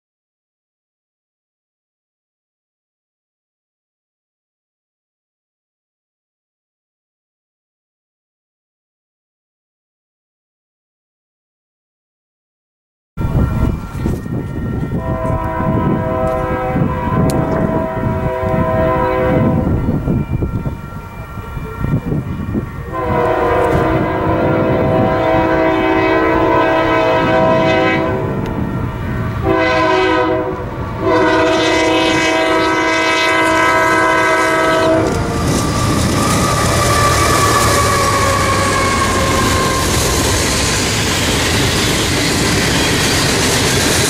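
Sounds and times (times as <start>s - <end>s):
locomotive chime horn: 13.2s - 41.4s
train wheels on rail: 13.2s - 44.0s.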